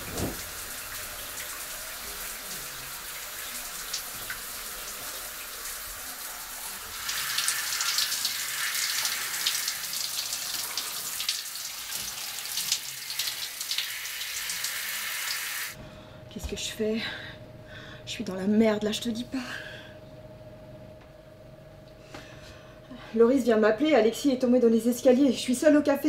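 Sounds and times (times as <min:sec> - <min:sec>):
shower spraying water: 0:00.0 - 0:15.8.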